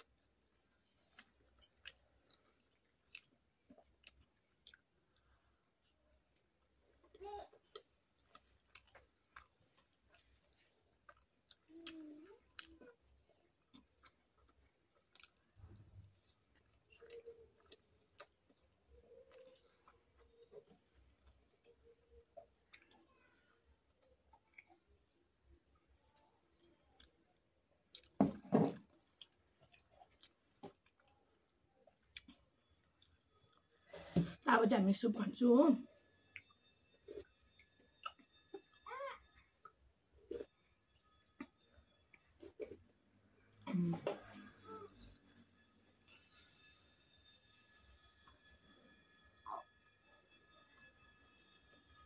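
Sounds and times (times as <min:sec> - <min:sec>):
wet chewing and lip-smacking: 0:00.0 - 0:28.2, 0:28.8 - 0:33.8, 0:36.3 - 0:43.7.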